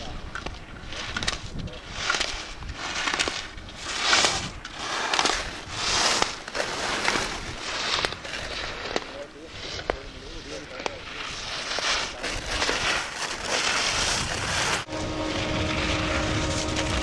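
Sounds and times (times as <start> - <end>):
skis scraping on snow: 0.0 - 17.0.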